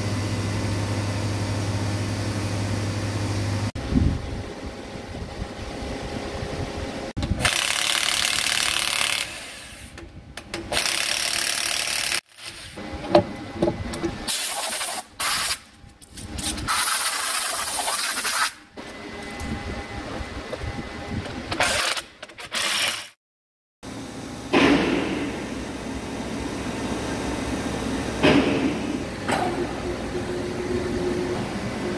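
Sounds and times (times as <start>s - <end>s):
steady machine hum: 0.0s - 7.7s, 18.7s - 21.6s, 23.8s - 31.9s
impact wrench bursts: 7.4s - 10.0s, 10.7s - 12.8s.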